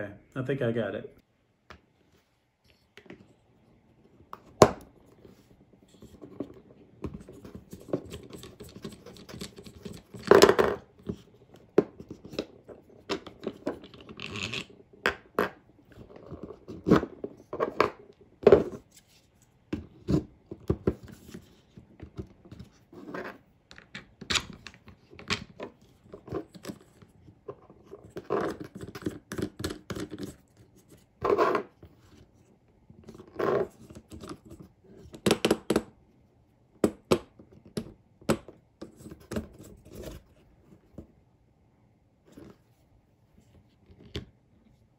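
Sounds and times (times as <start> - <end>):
plastic parts clicking and scraping: 5.1 - 32.3.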